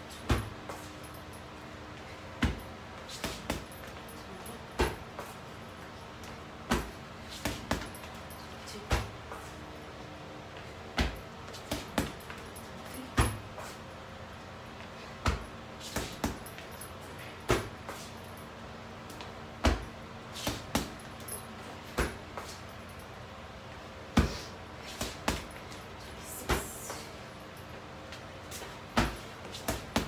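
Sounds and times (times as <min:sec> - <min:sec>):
punches thudding on heavy bag: 0:00.2 - 0:00.6, 0:02.4 - 0:03.8, 0:06.6 - 0:08.0, 0:10.9 - 0:12.2, 0:19.6 - 0:21.0, 0:28.9 - 0:30.0.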